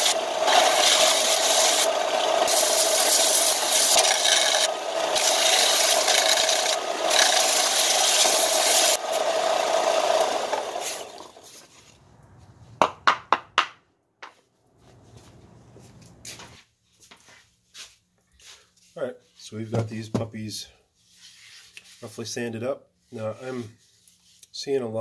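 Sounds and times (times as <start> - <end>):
belt sander grinding wood: 0.0 - 12.0
sharp knocks: 12.8 - 14.4.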